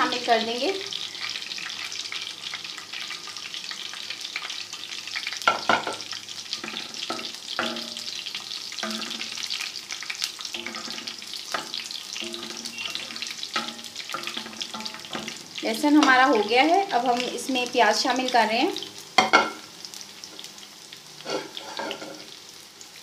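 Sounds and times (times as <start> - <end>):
garlic sizzling in fat: 0.0 - 23.0
scraping on pan: 5.5 - 16.2, 21.2 - 22.4.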